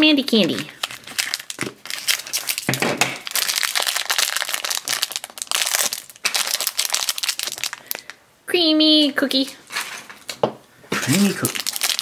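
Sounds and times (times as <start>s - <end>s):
plastic wrappers crinkling: 0.3s - 8.2s, 11.0s - 12.0s.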